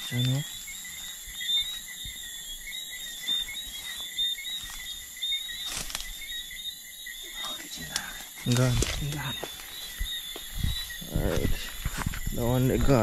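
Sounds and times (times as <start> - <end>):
frogs and insects chirping: 0.0 - 13.0
brush rustling: 3.0 - 6.4, 7.4 - 13.0.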